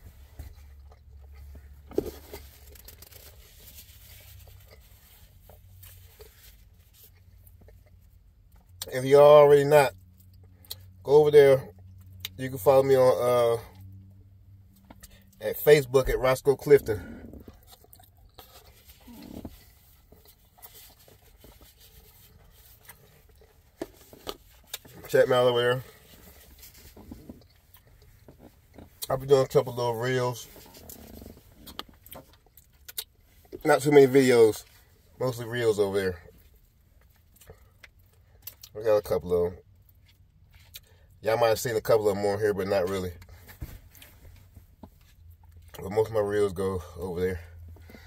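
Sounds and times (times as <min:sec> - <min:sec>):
low steady hum: 0:00.0 - 0:48.0
quiet chewing: 0:16.8 - 0:25.1.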